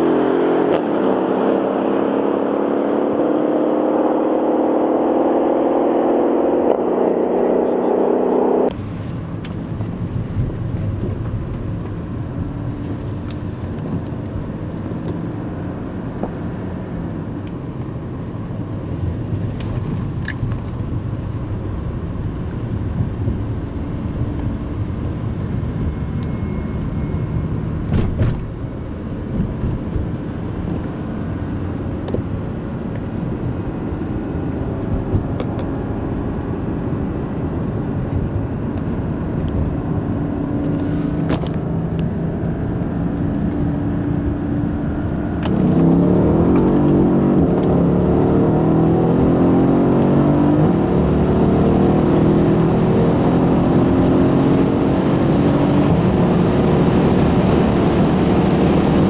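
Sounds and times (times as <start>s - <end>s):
car engine and tyre noise: 0.0s - 59.0s.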